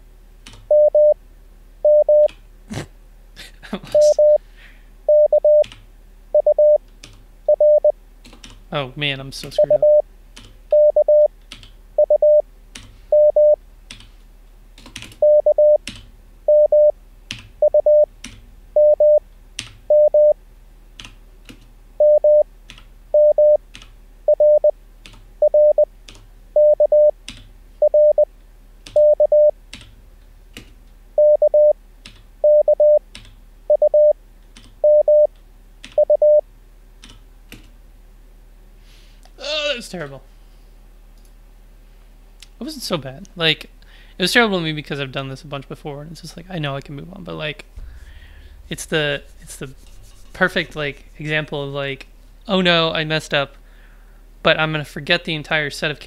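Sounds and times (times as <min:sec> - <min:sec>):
morse code tones: 0:00.7 - 0:01.2, 0:01.8 - 0:02.3, 0:04.0 - 0:04.4, 0:05.1 - 0:05.7, 0:06.4 - 0:06.8, 0:07.5 - 0:07.9, 0:09.6 - 0:10.0, 0:10.7 - 0:11.3, 0:12.0 - 0:12.4, 0:13.1 - 0:13.6, 0:15.2 - 0:15.8, 0:16.5 - 0:16.9, 0:17.6 - 0:18.1, 0:18.8 - 0:19.2, 0:19.9 - 0:20.4, 0:22.0 - 0:22.4, 0:23.2 - 0:23.6, 0:24.3 - 0:24.7, 0:25.4 - 0:25.9, 0:26.6 - 0:27.1, 0:27.8 - 0:28.3, 0:29.0 - 0:29.5, 0:31.2 - 0:31.8, 0:32.4 - 0:33.0, 0:33.7 - 0:34.2, 0:34.8 - 0:35.3, 0:36.0 - 0:36.4.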